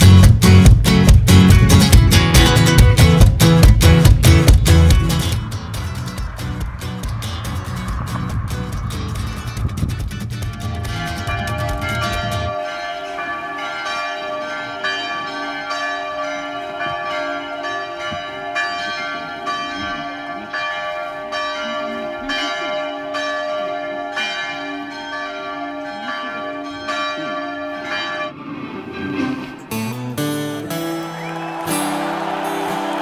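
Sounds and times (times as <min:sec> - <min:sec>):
church bells ringing: 0:02.5 - 0:09.6, 0:10.3 - 0:28.6.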